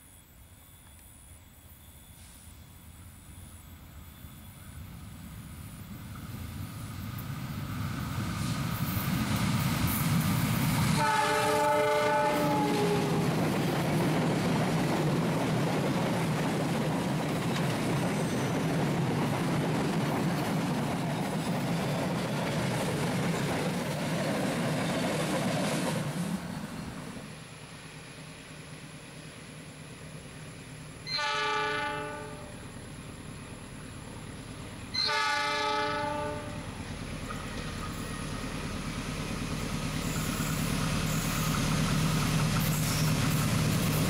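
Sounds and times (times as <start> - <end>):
train wheels rolling on rails: 0.0 - 31.2, 36.0 - 44.0
locomotive horn blast: 11.0 - 13.3, 31.1 - 32.6, 35.0 - 36.7.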